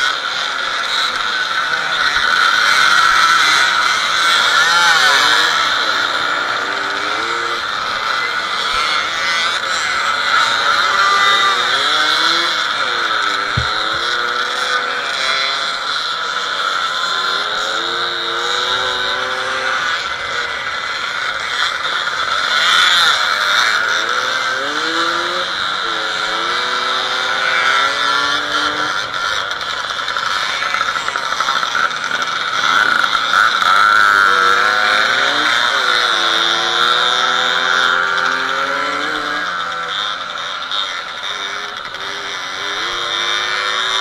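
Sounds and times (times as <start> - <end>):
two-stroke motorcycles revving: 0.0 - 44.0.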